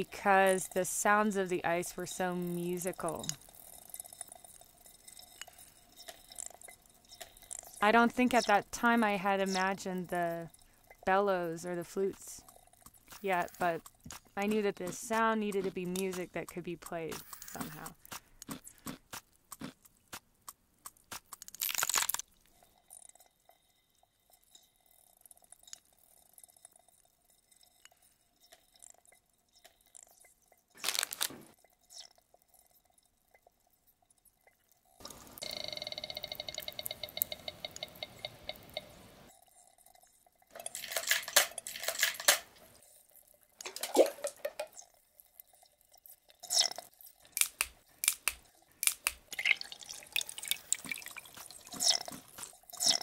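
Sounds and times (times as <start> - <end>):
ice cracking and popping: 1.9 - 8.5, 12.1 - 23.2, 24.5 - 33.1, 40.6 - 53.0.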